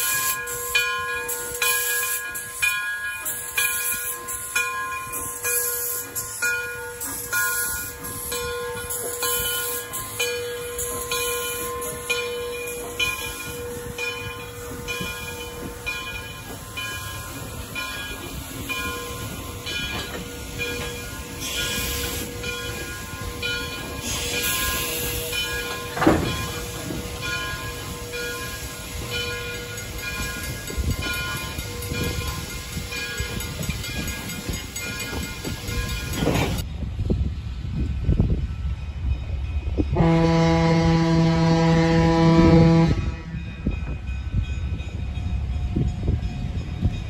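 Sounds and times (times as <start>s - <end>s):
steam hiss: 0.0s - 36.6s
steam locomotive rolling past: 0.0s - 47.0s.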